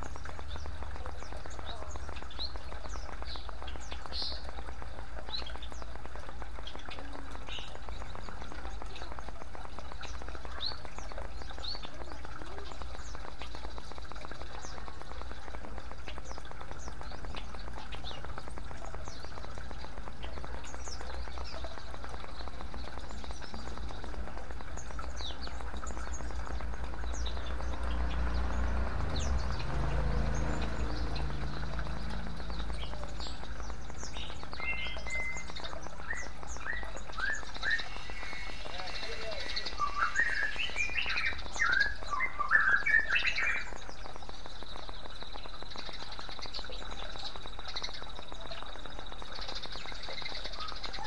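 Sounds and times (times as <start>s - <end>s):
small birds chirping: 0.0s - 51.0s
water trickling and splashing: 0.0s - 51.0s
low rumble: 22.6s - 35.0s.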